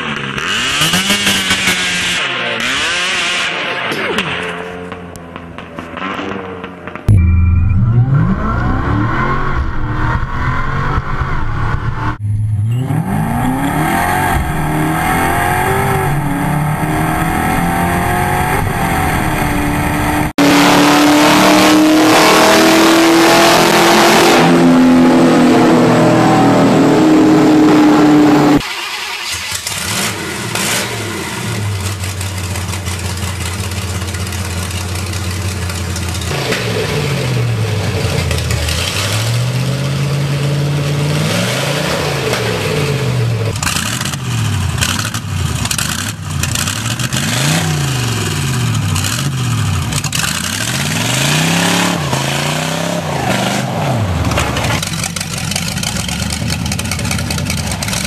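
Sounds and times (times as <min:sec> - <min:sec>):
car engine revving hard: 0:00.0 - 0:03.9, 0:12.8 - 0:28.6, 0:29.4 - 0:32.0, 0:36.3 - 0:54.8
engine revving in bursts: 0:12.8 - 0:28.6, 0:38.7 - 0:54.8.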